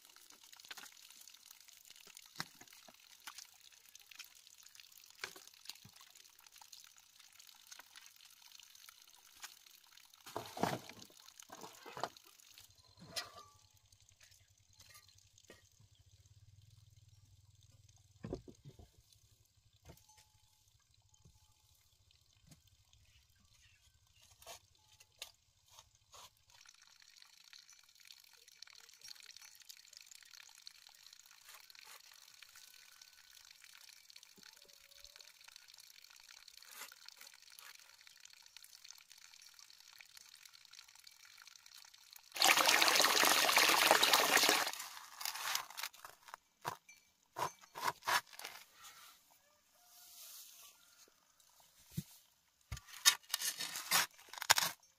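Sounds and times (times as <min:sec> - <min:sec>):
hoe scraping wet mud: 0:47.4 - 0:48.8.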